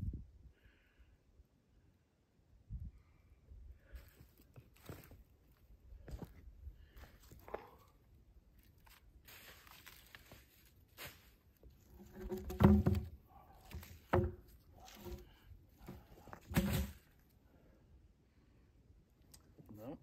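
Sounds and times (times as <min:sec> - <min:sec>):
dry leaves rustling underfoot: 0:08.5 - 0:12.1
wooden logs knocking on rocks: 0:11.9 - 0:15.3, 0:15.9 - 0:17.0.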